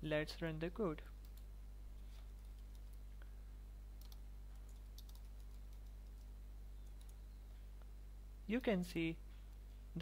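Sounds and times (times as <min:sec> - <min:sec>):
low electrical hum: 0:00.0 - 0:10.0
keyboard typing clicks: 0:02.4 - 0:03.0, 0:04.0 - 0:07.2.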